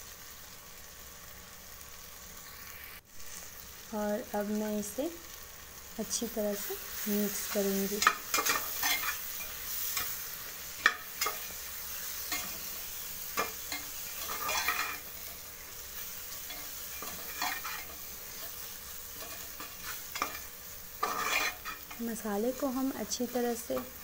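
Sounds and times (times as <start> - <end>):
food sizzling in oil: 0.0 - 24.0
metal spoon scraping pot: 8.0 - 10.1, 13.4 - 15.1, 16.5 - 18.6, 19.2 - 22.0.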